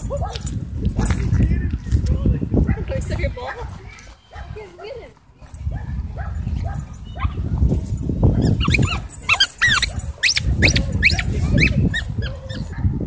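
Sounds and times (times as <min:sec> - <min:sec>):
dogs squealing: 0:08.3 - 0:12.8.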